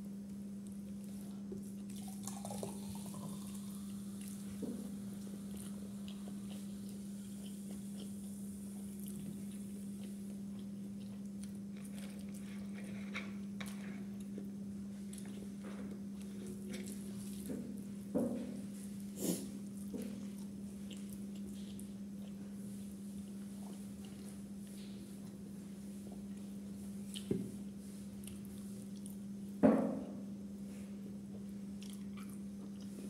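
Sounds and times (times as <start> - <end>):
steady low hum: 0.0 - 33.0
chewing: 1.0 - 17.6, 19.2 - 25.0, 28.2 - 29.2, 31.3 - 33.0.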